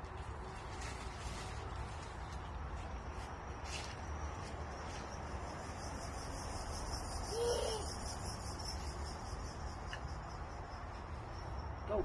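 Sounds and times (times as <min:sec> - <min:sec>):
high pulsing insect chirring: 0:03.4 - 0:12.0.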